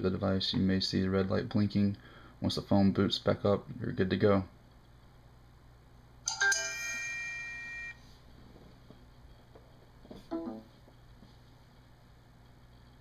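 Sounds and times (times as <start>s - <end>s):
electronic chime: 6.3s - 8.0s.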